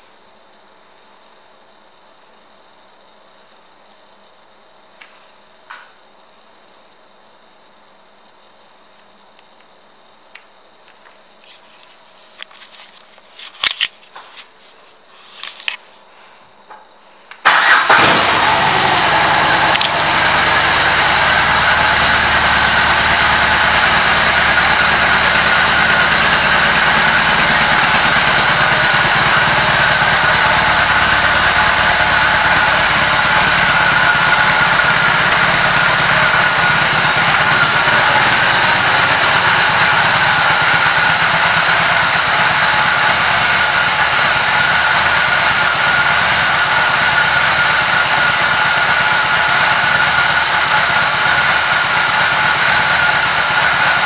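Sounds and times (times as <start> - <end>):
motorcycle engine starting and idling: 17.4 - 54.0.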